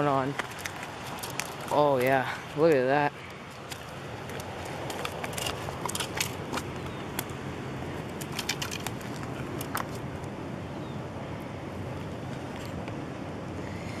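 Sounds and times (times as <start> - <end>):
fish flopping on concrete: 0.3 - 1.8, 3.5 - 7.4.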